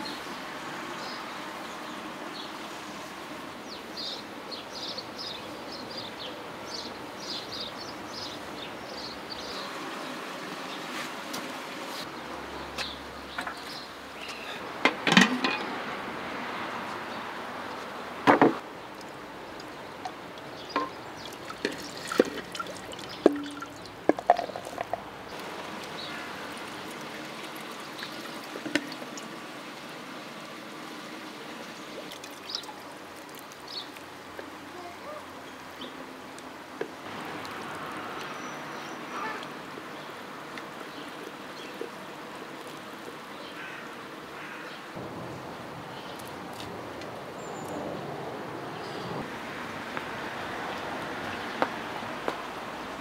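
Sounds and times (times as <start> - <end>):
steady background hiss: 0.0 - 53.0
metal pot and lid clanking: 14.9 - 15.7, 20.8 - 21.0.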